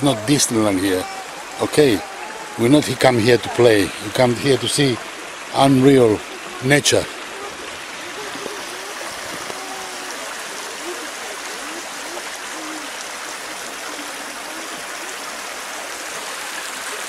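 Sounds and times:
flowing water rushing: 0.0 - 17.0
faint indistinct voices: 5.9 - 15.7.

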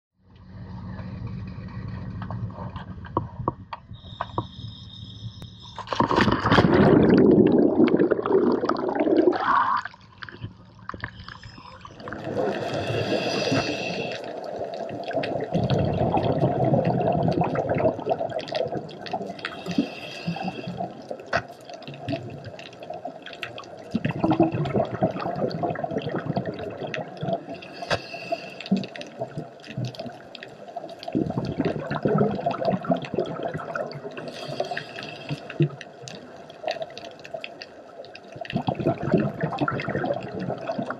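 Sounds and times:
breathing through scuba regulator: 3.9 - 6.1, 11.0 - 14.6, 19.3 - 21.1, 27.5 - 29.1, 34.2 - 35.8
bubbling and hissing: 4.0 - 40.9.

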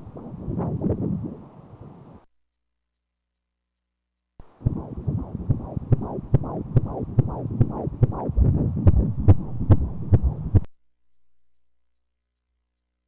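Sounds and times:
ultrasound fetal heartbeat whooshing: 4.4 - 10.7.

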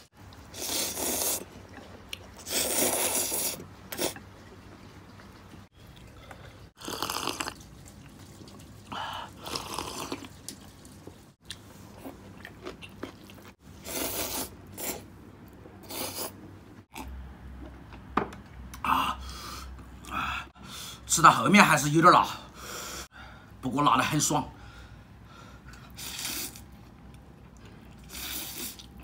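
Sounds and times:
person slurping noodles: 0.5 - 1.8, 2.4 - 4.2, 6.8 - 7.6, 8.8 - 10.3, 13.8 - 15.1, 15.8 - 16.4, 26.0 - 26.6, 28.0 - 28.9.

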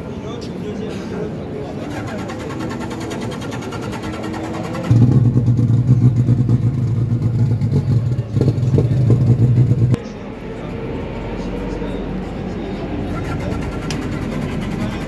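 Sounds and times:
faint engine background: 0.0 - 15.0
motorcycle engine running: 2.4 - 10.0.

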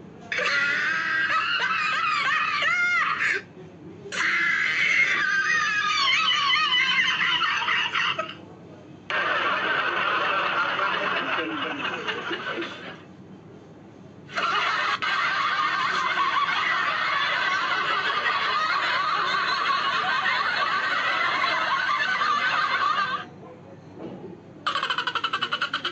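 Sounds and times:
high-pitched laughter: 0.3 - 3.5, 4.1 - 8.4, 14.3 - 23.2, 24.7 - 25.9.

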